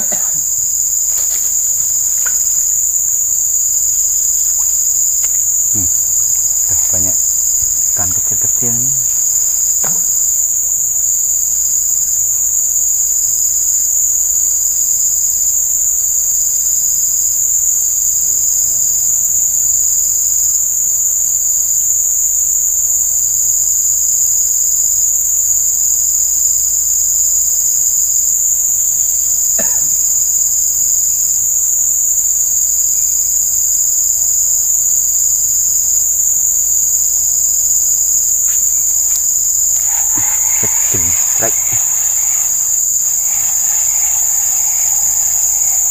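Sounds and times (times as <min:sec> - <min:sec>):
lower pulsing insect shrill: 0:00.0 - 0:12.1, 0:37.0 - 0:45.9
high-pitched insect chorus: 0:00.0 - 0:45.9.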